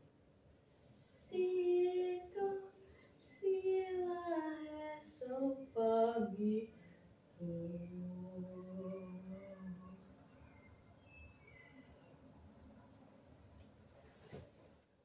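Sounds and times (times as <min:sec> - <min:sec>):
woman singing long notes: 0:01.2 - 0:06.8, 0:07.4 - 0:10.1.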